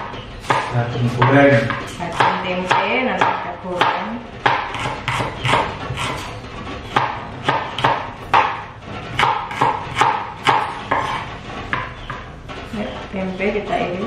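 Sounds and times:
knife chopping on wooden board: 0.0s - 12.4s.

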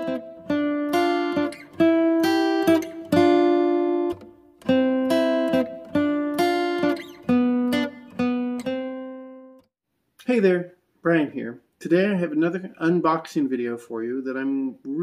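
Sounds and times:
guitar chords strummed: 0.0s - 9.7s.

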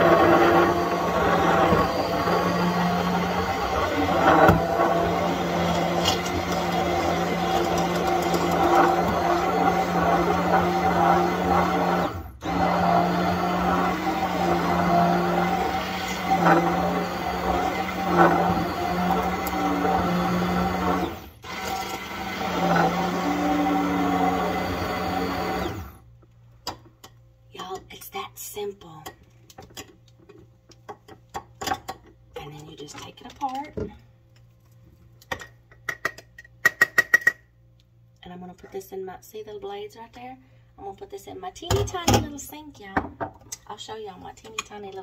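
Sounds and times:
immersion blender running: 0.0s - 26.0s.

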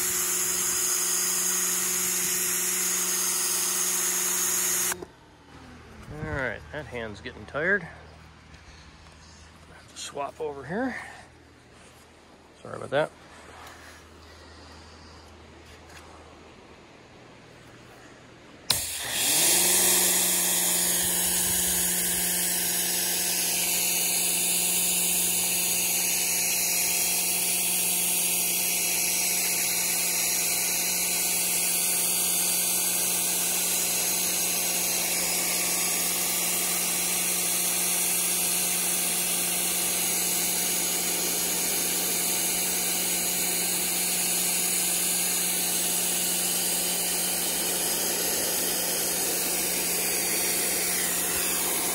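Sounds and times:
pressure washer pump hum: 0.0s - 11.2s, 18.7s - 51.9s
high-pressure spray hissing: 25.5s - 51.9s.

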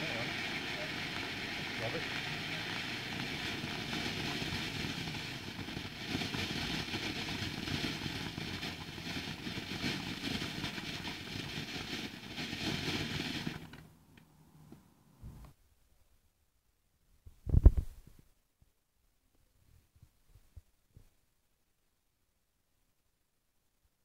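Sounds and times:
firework fountain hissing and crackling: 0.0s - 13.8s.

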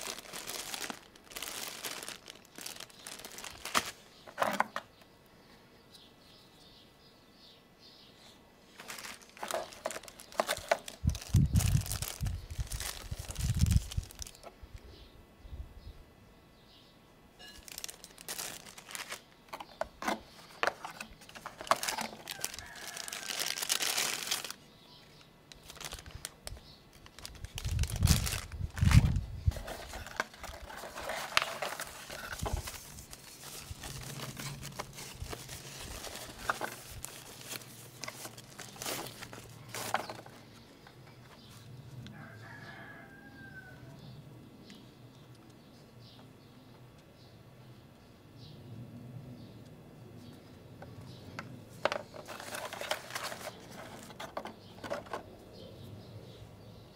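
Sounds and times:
cardboard packaging rustling: 0.0s - 4.9s, 8.7s - 14.5s, 17.4s - 24.6s, 25.5s - 40.6s, 51.7s - 55.2s.

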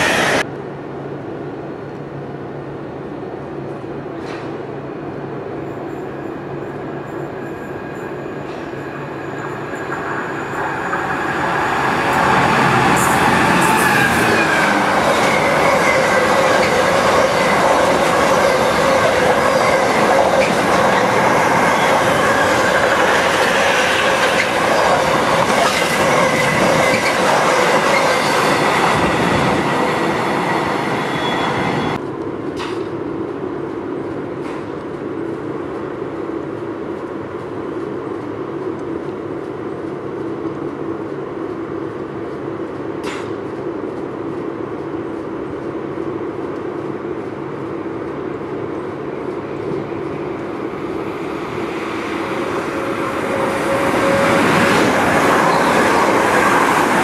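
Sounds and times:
electric train hum: 0.0s - 57.0s
freight train wagons rolling past: 6.2s - 32.0s, 43.0s - 57.0s.

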